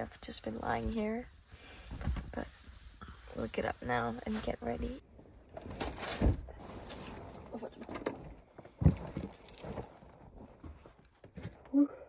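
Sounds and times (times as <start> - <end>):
bedding rustling: 0.0 - 11.6.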